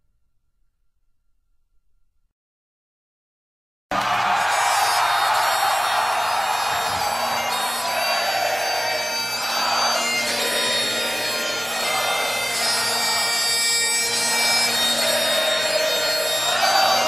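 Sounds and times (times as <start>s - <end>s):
held drone note: 5.0s - 17.0s.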